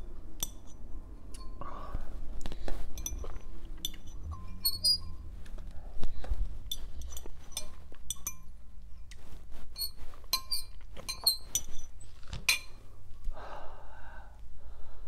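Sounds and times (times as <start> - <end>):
fork clinking against glass bowl: 3.0 - 5.2, 6.7 - 8.5, 10.3 - 11.8.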